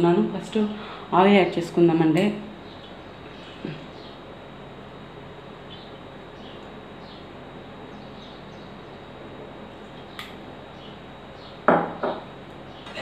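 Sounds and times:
small click: 10.2s - 10.4s.

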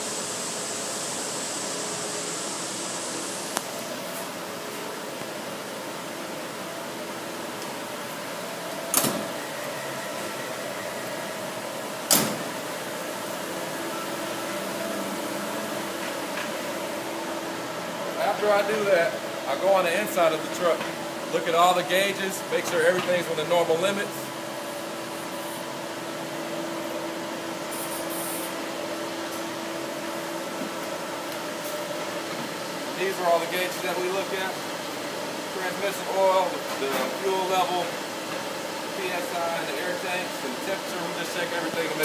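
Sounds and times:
steady hum: 0.0s - 42.0s
truck doors slamming: 12.0s - 12.6s
brief high hiss: 27.7s - 28.6s.

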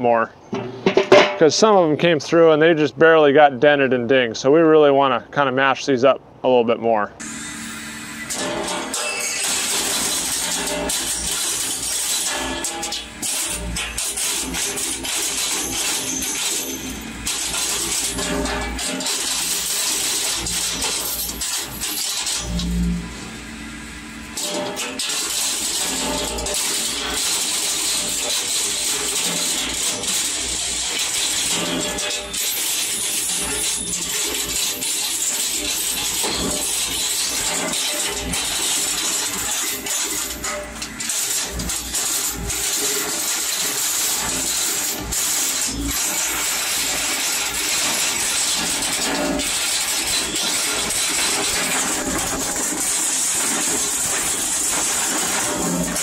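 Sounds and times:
metallic clatter in hammer mill: 0.4s - 1.8s, 8.2s - 23.3s, 24.1s - 56.0s
sharp metallic bangs: 0.4s - 1.9s, 7.2s - 23.4s
hammer mill running: 7.2s - 56.0s.

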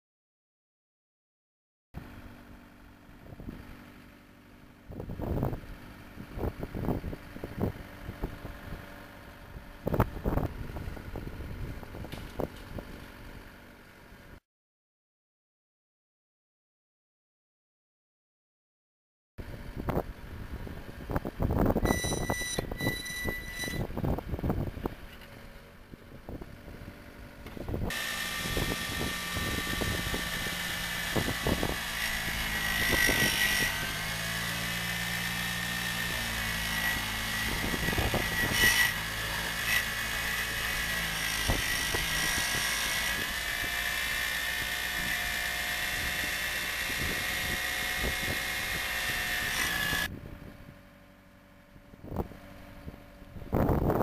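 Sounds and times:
drilling rig whine and hum: 19.4s - 54.0s.

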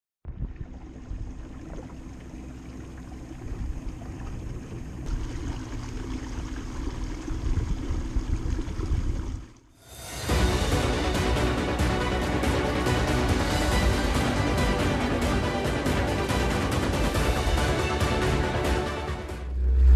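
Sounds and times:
trolling motor hum: 0.3s - 9.7s
water washing along kayak: 0.3s - 19.2s
music: 9.8s - 19.9s.

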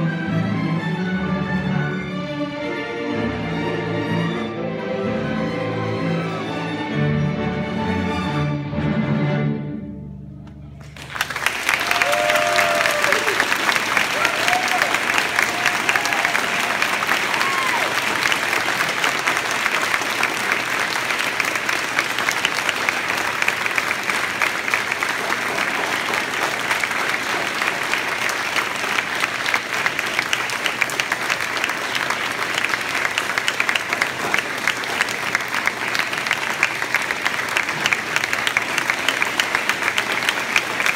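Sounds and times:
audience applauding: 10.8s - 40.9s.

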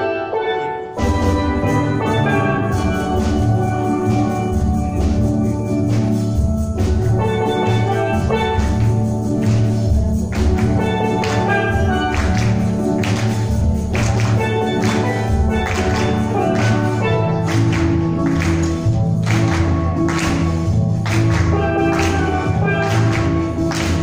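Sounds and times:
steel drum ensemble playing: 0.0s - 24.0s
percussion hits: 0.4s - 24.0s.

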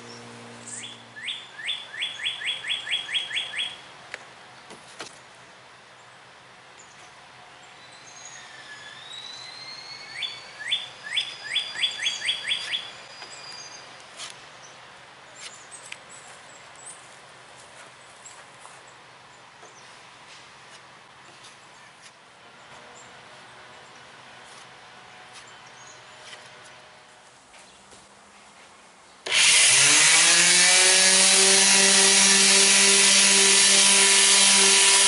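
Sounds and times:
higher bird calls: 0.0s - 3.8s
songbird chirping: 0.0s - 4.8s, 5.4s - 24.2s.

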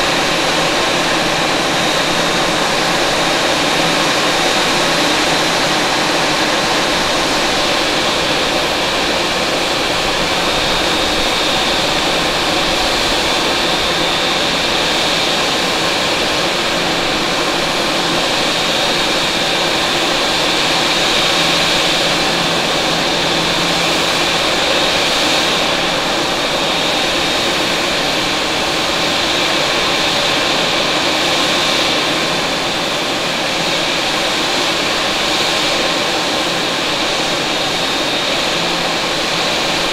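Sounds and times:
jet engine rushing hiss: 0.0s - 39.9s
jet engines whining: 0.0s - 39.9s.

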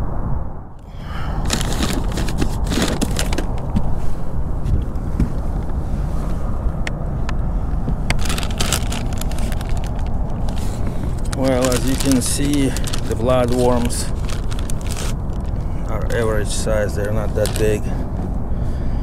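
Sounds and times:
steady low rumble: 0.0s - 19.0s
paper and plastic bag crinkling: 1.3s - 3.8s, 8.1s - 18.0s.

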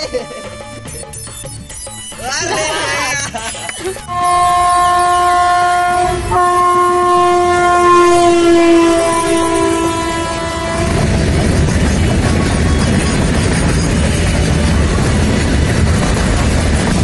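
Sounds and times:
train horn blasts: 4.0s - 14.4s.

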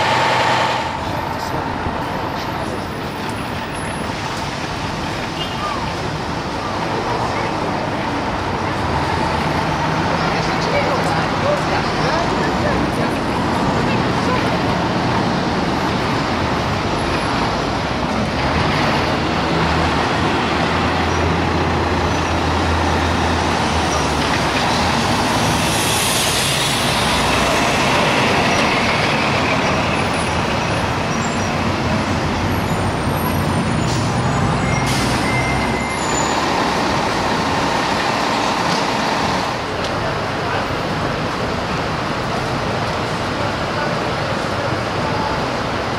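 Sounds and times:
heavy diesel engines passing: 0.0s - 45.9s
road noise: 0.0s - 45.9s
air brakes hissing: 33.8s - 36.2s.

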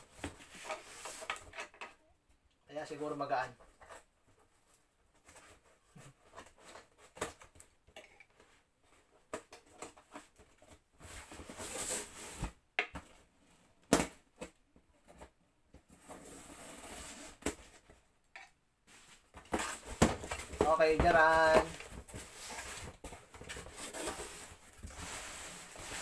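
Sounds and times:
cardboard scraping: 15.8s - 17.9s, 18.9s - 26.0s.

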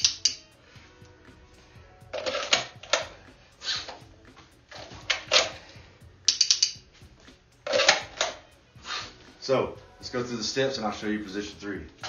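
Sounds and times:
sharp clicks: 6.3s - 6.8s.

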